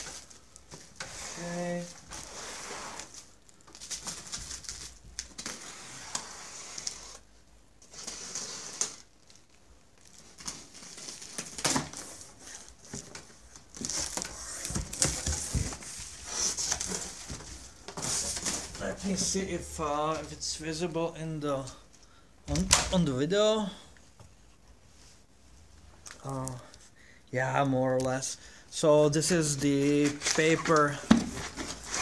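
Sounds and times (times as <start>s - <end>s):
plastic wrap crinkling and tearing: 3.0s - 6.0s
cardboard flaps rustling: 10.2s - 20.3s, 29.4s - 32.0s.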